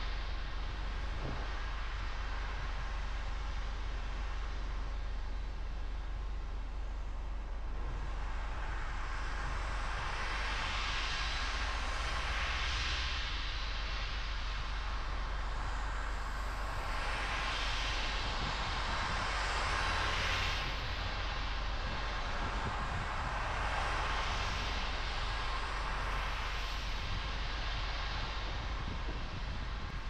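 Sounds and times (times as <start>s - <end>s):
car road rumble: 0.0s - 30.0s
tyres hissing on wet road: 7.9s - 30.0s.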